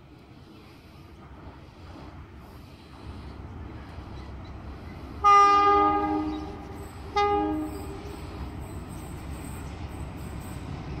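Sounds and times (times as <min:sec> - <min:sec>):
low train rumble: 0:00.0 - 0:11.0
locomotive air horn blasts: 0:05.2 - 0:08.2.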